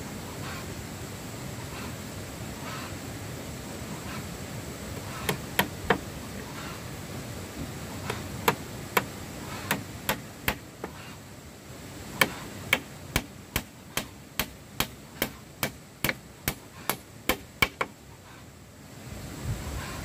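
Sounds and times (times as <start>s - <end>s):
hand tool striking wood: 5.2s - 6.1s, 8.0s - 11.0s, 12.2s - 18.0s.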